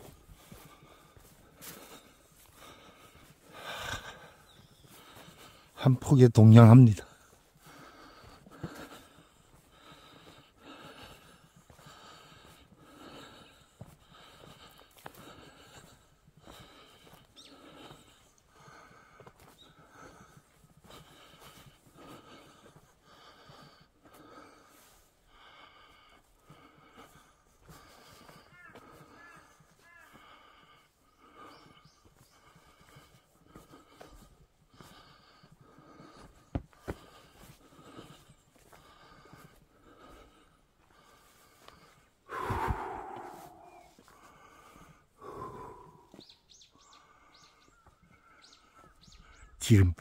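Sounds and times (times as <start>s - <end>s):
person breathing while walking: 0.0s - 5.8s, 7.0s - 49.6s
small bird chirping: 45.7s - 49.6s.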